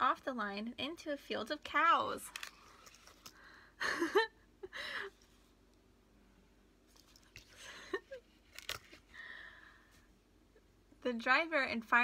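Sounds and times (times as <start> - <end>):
paper rustle: 2.3 - 3.3, 8.3 - 9.1
person breathing out: 9.1 - 10.0.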